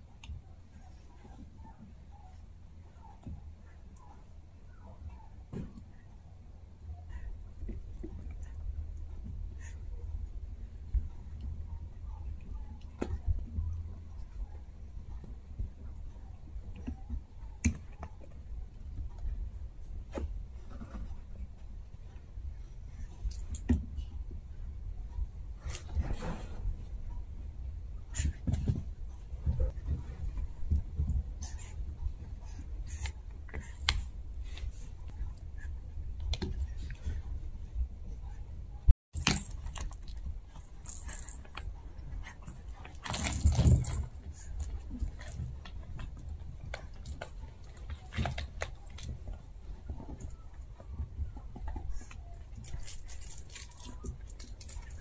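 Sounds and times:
puppies playing with toys: 0.0 - 55.0
puppies chewing toys: 39.2 - 55.0.

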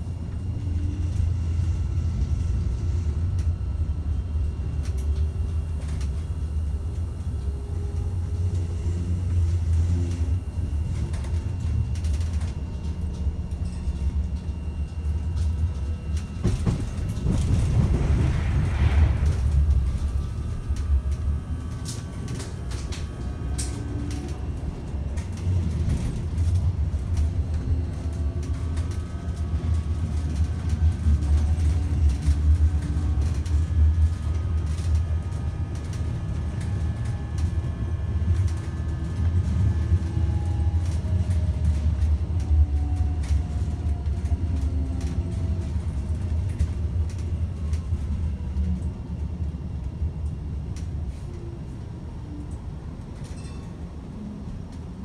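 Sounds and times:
electric drive whine: 0.0 - 55.0
wheels rumbling on rail: 0.0 - 55.0.

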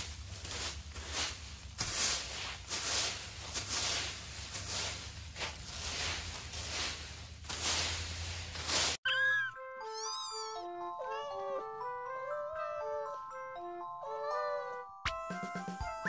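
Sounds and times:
rake scraping through dry leaves: 0.0 - 9.0.

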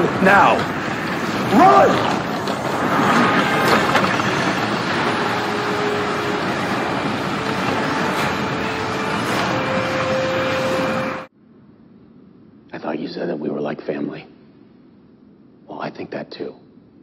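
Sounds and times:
steady rushing roar: 0.0 - 11.3.

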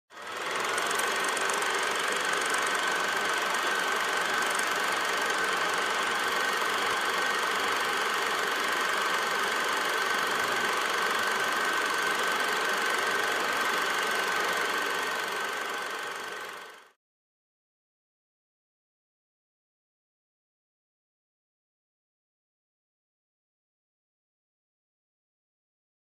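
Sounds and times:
machine whirring and clattering: 0.1 - 16.9.

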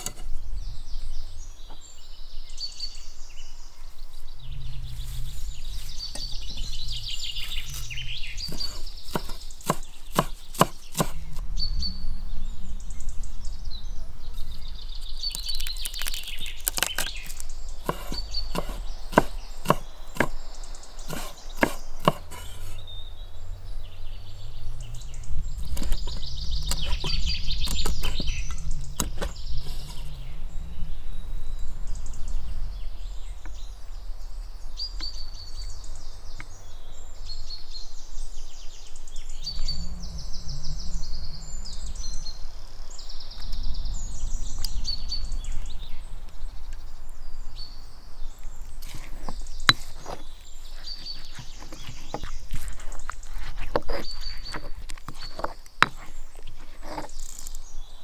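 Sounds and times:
small birds chirping: 0.0 - 58.0
low rumble: 3.4 - 9.1, 11.2 - 15.2, 22.8 - 34.8, 38.2 - 47.6
knife chopping on wooden board: 8.5 - 11.2, 17.8 - 20.4, 21.1 - 22.8.

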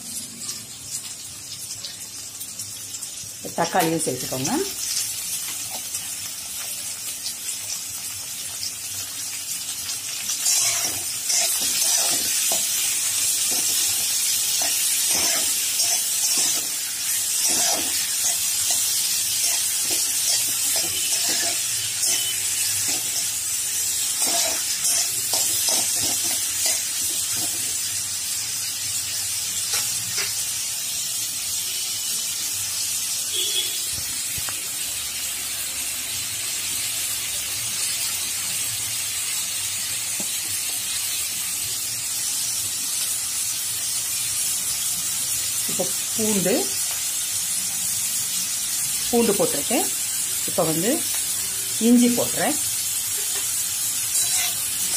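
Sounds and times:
onions and tomatoes sizzling in oil: 0.0 - 54.9
spatula scraping and knocking pan: 10.4 - 23.2, 24.2 - 27.7, 54.2 - 54.9.

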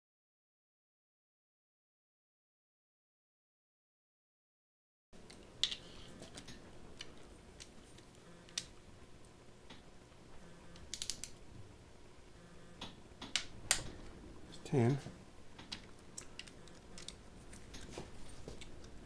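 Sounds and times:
workshop room tone: 5.2 - 19.0.

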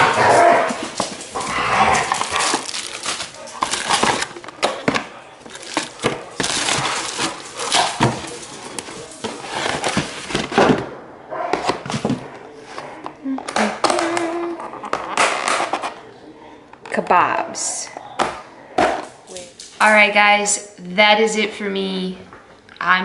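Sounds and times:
paper wrapping rustling: 0.1 - 10.8
plastic container being handled: 2.2 - 10.8.

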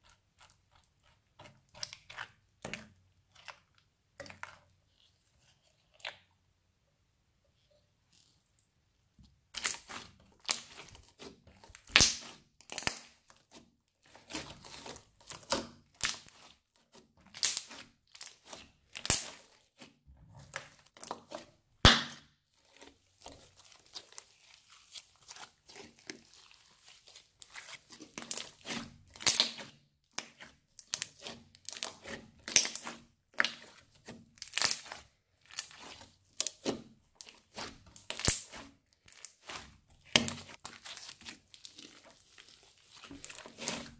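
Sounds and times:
slime crackling and popping: 9.5 - 16.5, 17.2 - 19.8, 20.5 - 43.9.

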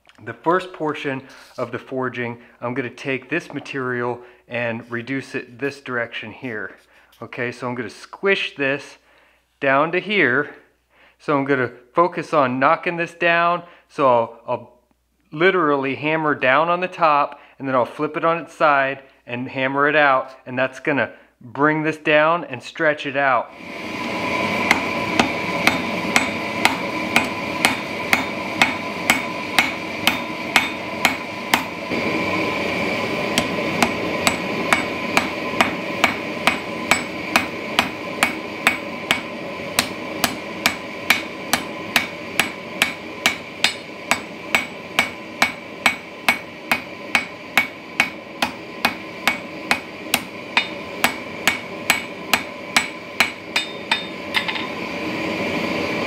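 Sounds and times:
anvil ringing: 24.7 - 31.7, 33.4 - 54.8
hammer striking steel on anvil: 24.7 - 31.8, 33.4 - 54.8.

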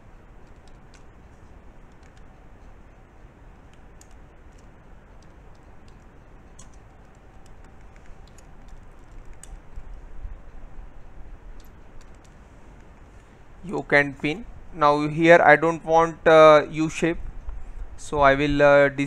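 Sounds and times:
low background hum: 0.0 - 19.0
keyboard key clicks: 1.9 - 2.3, 3.7 - 10.0, 11.6 - 12.9.

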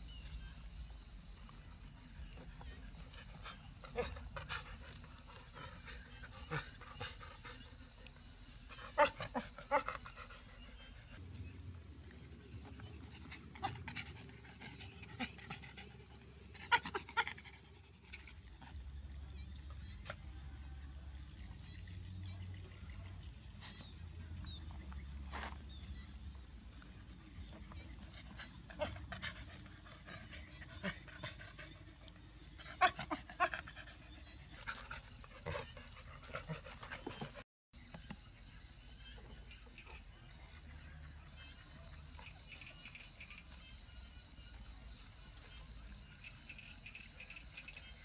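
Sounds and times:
dogs panting: 1.5 - 37.4.

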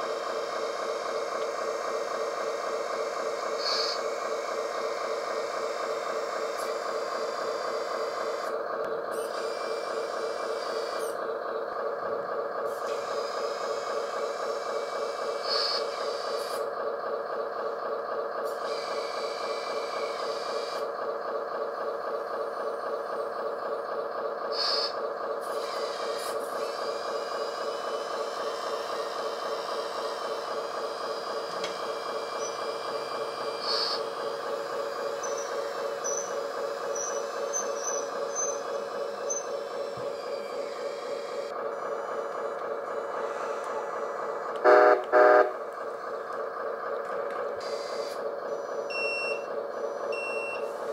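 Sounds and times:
electric hydraulic pump whining: 24.5 - 50.9.

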